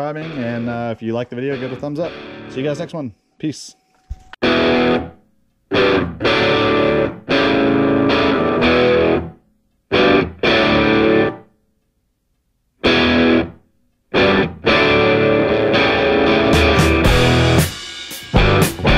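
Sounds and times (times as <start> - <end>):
distorted electric guitar chords: 1.5 - 2.7, 4.4 - 11.5, 12.8 - 18.9.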